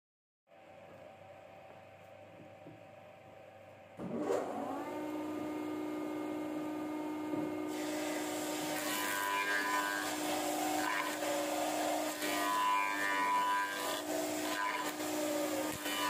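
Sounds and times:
jointer motor whine and hum: 3.4 - 16.0
wood cutting hiss: 7.7 - 16.0.

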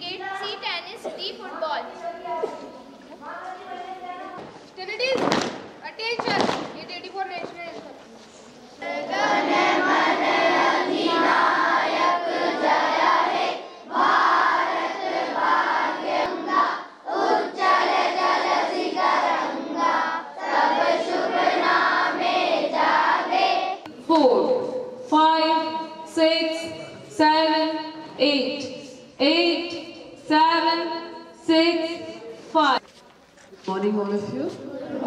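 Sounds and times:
children singing in unison: 8.8 - 23.9.

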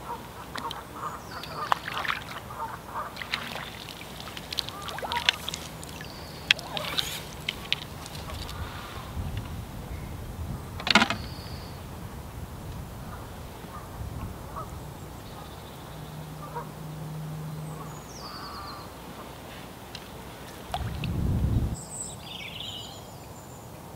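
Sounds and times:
waterfowl calling: 0.0 - 9.2, 13.0 - 21.0.

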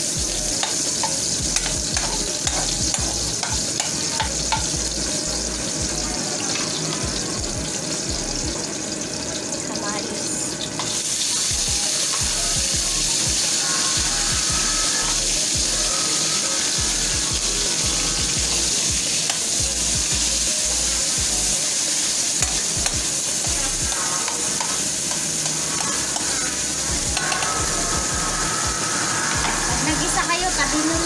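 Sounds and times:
vegetables sizzling in hot oil: 0.0 - 31.0
metal spatula scraping a wok: 0.6 - 4.7.

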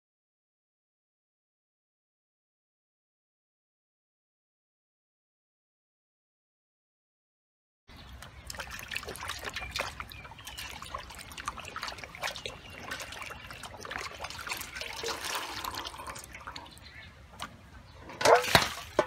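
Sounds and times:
hands splashing water in bowl: 8.2 - 16.7, 18.2 - 19.0.

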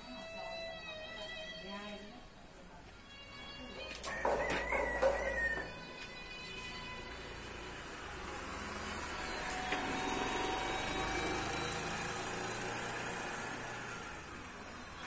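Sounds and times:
vehicle engine passing by: 7.2 - 15.0.

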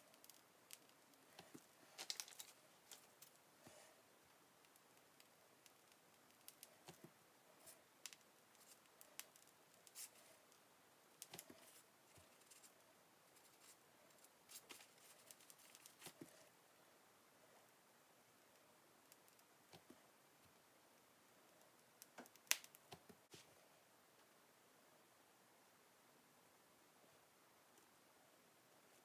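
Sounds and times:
plastic piping bag crinkling: 0.1 - 3.4.

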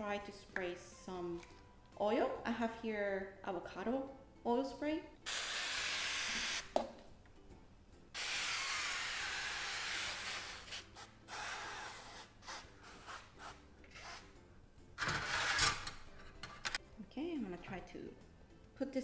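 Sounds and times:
aerosol spray hissing: 8.2 - 13.5.

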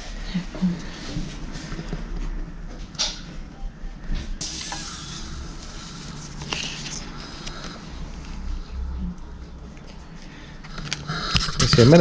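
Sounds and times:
low steady hum: 0.0 - 12.0
paper rustling and scraping: 6.3 - 7.6.

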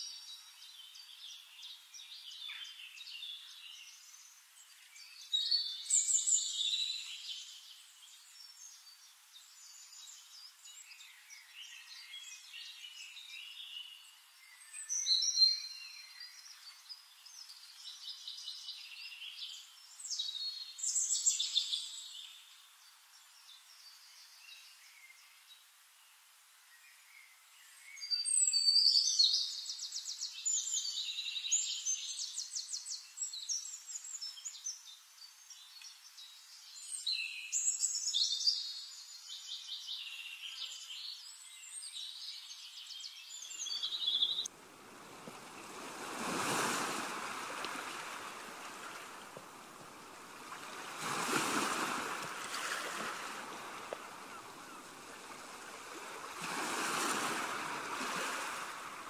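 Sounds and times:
songbirds trilling and chirping: 0.0 - 59.0
waves washing in: 44.5 - 59.0.

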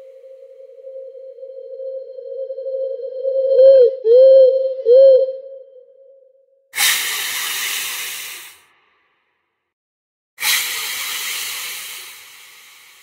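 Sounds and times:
held tone: 0.0 - 6.2
loud hisses: 6.8 - 8.6, 10.4 - 13.0.

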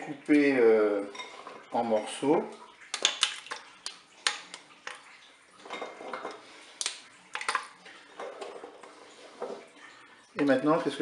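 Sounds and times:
chocolate pieces clicking on pot: 2.9 - 4.6.

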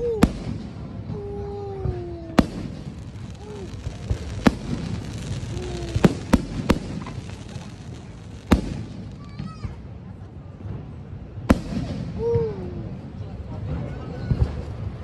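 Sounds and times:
background hubbub: 0.0 - 15.0
fireworks bursting: 0.2 - 1.2, 1.8 - 10.1, 11.4 - 12.2.

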